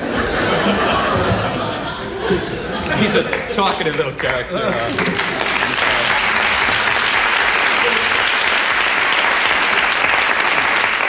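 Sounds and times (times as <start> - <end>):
audience applauding: 2.8 - 11.0.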